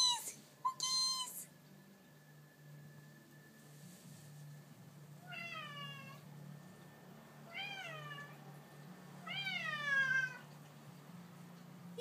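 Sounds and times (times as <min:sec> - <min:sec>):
cat meowing: 0:05.2 - 0:06.2, 0:07.5 - 0:08.4, 0:09.2 - 0:10.5.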